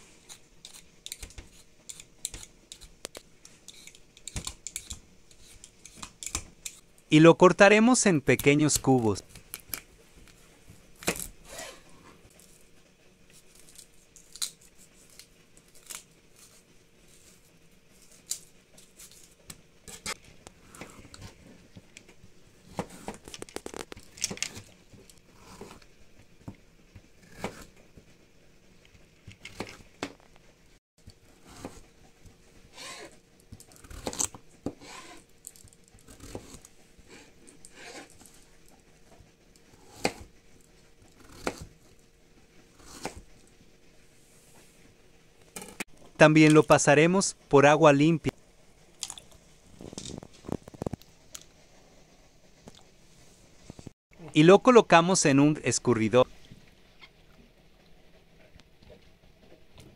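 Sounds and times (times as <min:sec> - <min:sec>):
knife slicing vegetable: 0:27.2 - 0:27.8, 0:32.7 - 0:35.3, 0:36.0 - 0:38.2, 0:39.6 - 0:40.3, 0:41.1 - 0:41.9, 0:42.8 - 0:43.4.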